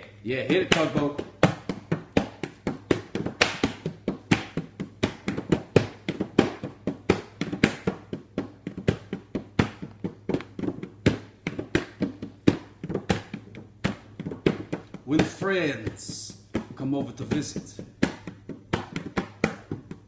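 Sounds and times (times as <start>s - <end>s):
person reciting a poem: 0.0s - 1.3s, 15.1s - 17.9s
hand drumming on bongos: 0.5s - 20.0s.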